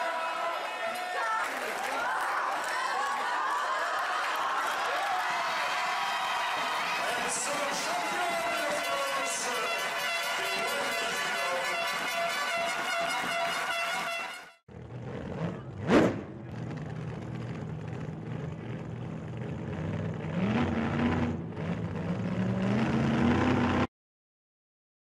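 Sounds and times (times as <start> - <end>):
music: 7.5 - 14.6
tractor engine running: 14.7 - 22.8.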